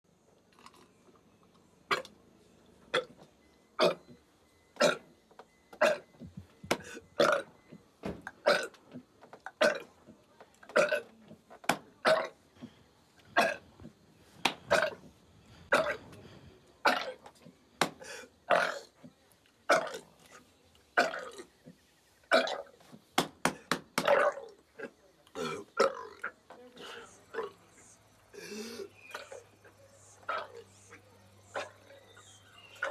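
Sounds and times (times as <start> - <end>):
man belching: 3.8 - 4.0, 4.8 - 5.1, 5.8 - 6.1, 6.7 - 7.5, 8.4 - 8.8, 9.5 - 9.9, 10.7 - 11.1, 12.0 - 12.4, 13.4 - 13.7, 14.7 - 15.0, 15.7 - 16.1, 18.5 - 18.9, 19.7 - 20.1, 24.0 - 26.4.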